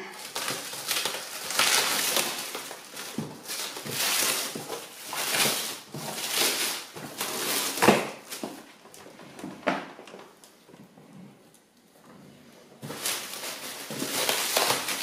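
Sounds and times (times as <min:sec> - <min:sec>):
plastic stretch wrap tearing: 0:00.1 - 0:09.1, 0:12.8 - 0:15.0.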